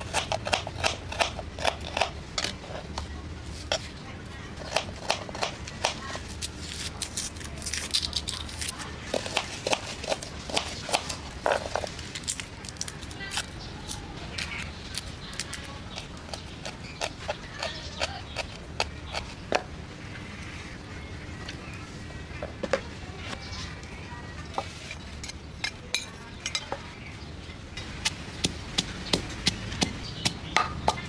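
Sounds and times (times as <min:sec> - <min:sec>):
dry skins crackling as peeled: 0:04.6 - 0:19.4.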